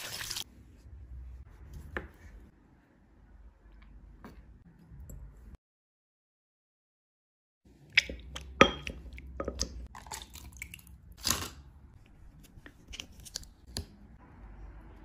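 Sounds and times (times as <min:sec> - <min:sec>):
glass and plastic tableware knocks: 0:08.6 - 0:09.7.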